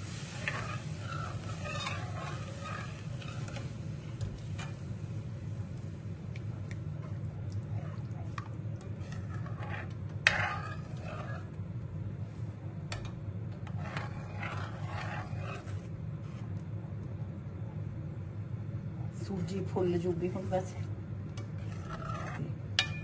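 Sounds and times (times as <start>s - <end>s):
wooden spoon scraping a pan: 0.0s - 4.9s, 7.0s - 11.6s, 12.9s - 16.5s, 21.5s - 23.0s
low cooking rumble: 0.0s - 23.0s.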